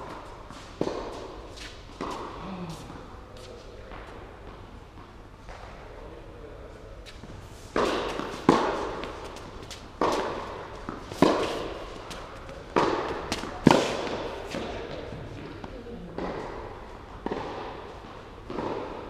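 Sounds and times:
tennis ball bouncing: 0:00.0 - 0:02.9, 0:07.7 - 0:19.0
racket hitting tennis ball: 0:00.0 - 0:03.0, 0:07.2 - 0:19.0.

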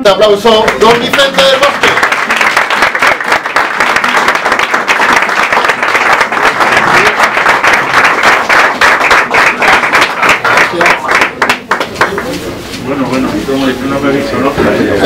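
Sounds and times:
audience applauding: 0:00.6 - 0:12.4.

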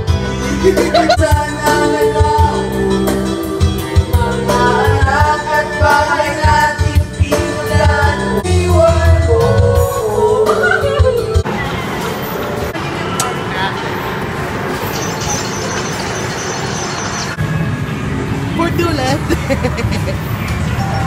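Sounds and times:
backing track with heavy bass: 0:00.0 - 0:11.6
woman singing karaoke: 0:07.7 - 0:11.4.

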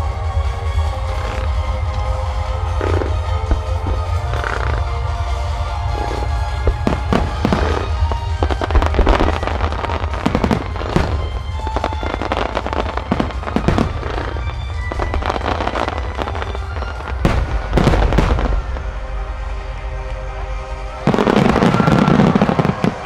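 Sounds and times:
fireworks bursting and crackling: 0:00.0 - 0:23.0
music playing: 0:00.0 - 0:23.0
heavy firework bangs: 0:05.8 - 0:19.1, 0:21.0 - 0:23.0.

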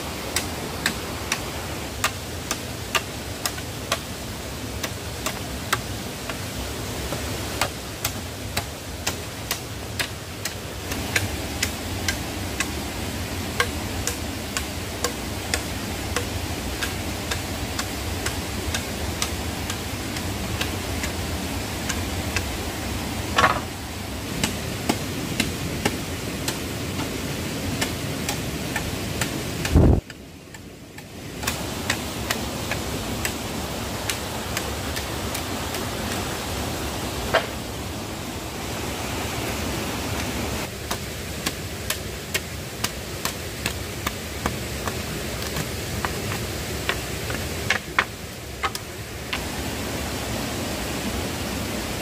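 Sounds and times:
stream rushing: 0:00.0 - 0:52.0
machete striking bamboo: 0:07.1 - 0:12.8, 0:13.6 - 0:19.8, 0:23.4 - 0:23.7, 0:27.8 - 0:33.4, 0:40.9 - 0:45.7.

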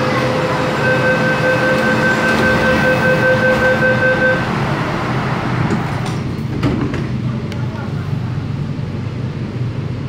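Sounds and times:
sliding doors shutting: 0:00.0 - 0:07.1
train running hum: 0:00.0 - 0:10.0
electronic warning tone: 0:00.2 - 0:04.5.

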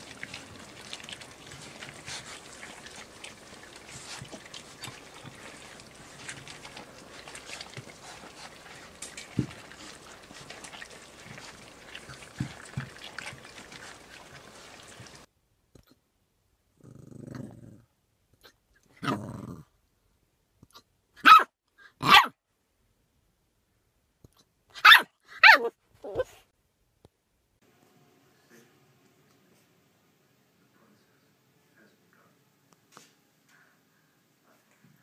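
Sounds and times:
puppies chewing and lapping: 0:00.0 - 0:15.3
puppy hiccup: 0:21.2 - 0:22.3, 0:24.8 - 0:26.3
puppy yelping: 0:21.2 - 0:22.3, 0:24.8 - 0:26.4.

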